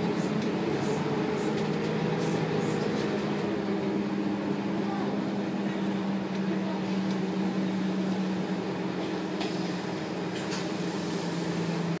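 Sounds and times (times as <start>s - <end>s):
bus engine drone: 0.0s - 12.0s.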